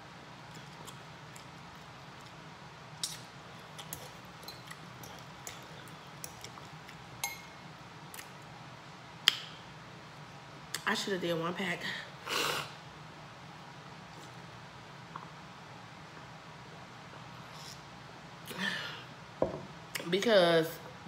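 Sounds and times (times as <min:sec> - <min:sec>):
fork clinking against glass bowl: 0:07.2 - 0:07.5.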